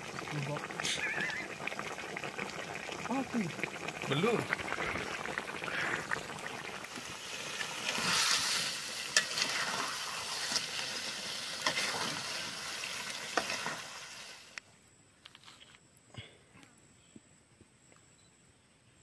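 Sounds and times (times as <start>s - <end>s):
food sizzling in a frying pan: 0.0s - 14.6s.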